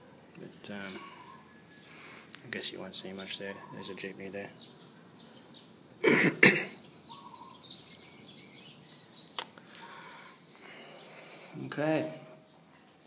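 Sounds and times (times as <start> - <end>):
man coughing: 6.0 - 6.8.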